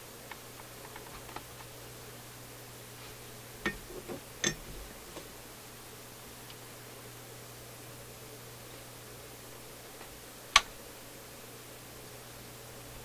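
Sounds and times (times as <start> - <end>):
fingers clicking and scratching cord: 0.3 - 1.7.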